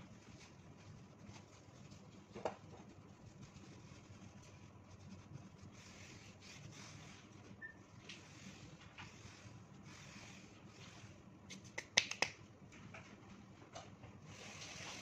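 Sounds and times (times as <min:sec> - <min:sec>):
hands rubbing dough: 0:00.0 - 0:12.4
hands clapping: 0:11.7 - 0:12.4.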